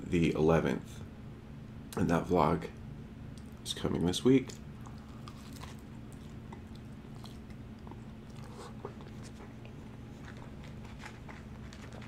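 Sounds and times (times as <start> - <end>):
faint low hum: 0.0 - 12.0
chewing food: 4.5 - 12.0.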